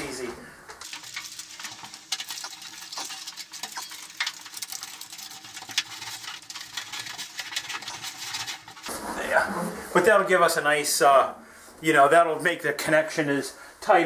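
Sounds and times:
foil tape crinkling: 0.8 - 9.0.

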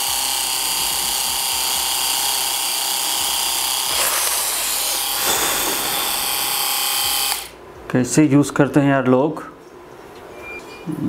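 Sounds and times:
epilator motor whine: 0.0 - 7.6.

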